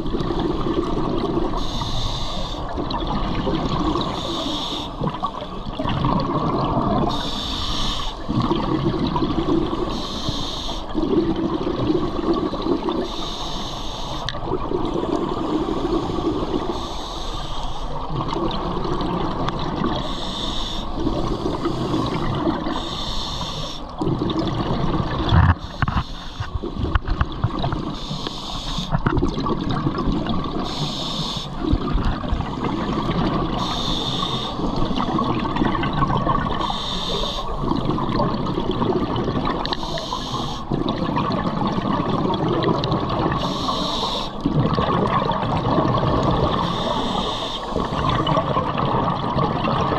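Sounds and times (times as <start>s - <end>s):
exhaled bubbles underwater: 0.0s - 49.9s
regulator inhale hiss: 1.6s - 2.7s, 4.1s - 5.0s, 7.1s - 8.3s, 9.9s - 10.9s, 13.0s - 14.3s, 15.3s - 18.0s, 20.0s - 23.9s, 25.6s - 26.6s, 27.9s - 29.0s, 30.6s - 31.7s, 33.5s - 35.1s, 36.6s - 37.6s, 39.7s - 40.7s, 43.4s - 44.4s, 46.6s - 48.0s.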